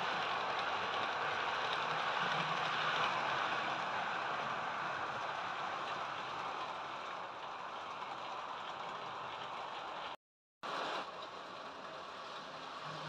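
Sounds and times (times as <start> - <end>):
model train rattling rumble: 0.0 - 10.2.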